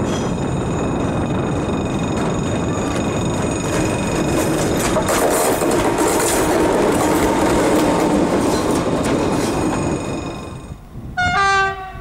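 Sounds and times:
locomotive rumbling over rails: 0.0s - 12.0s
train horn: 11.2s - 12.0s.

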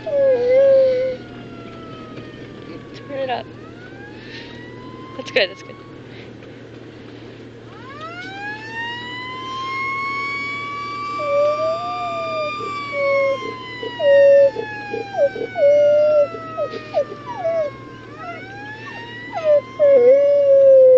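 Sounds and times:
dog howling: 0.0s - 1.2s, 9.8s - 20.9s
siren wailing: 0.0s - 6.1s, 7.6s - 20.9s.

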